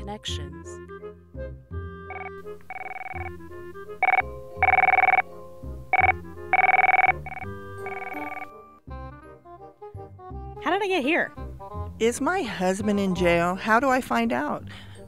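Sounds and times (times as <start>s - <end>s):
background music: 0.0s - 15.0s
desk telephone ringing: 2.1s - 8.5s.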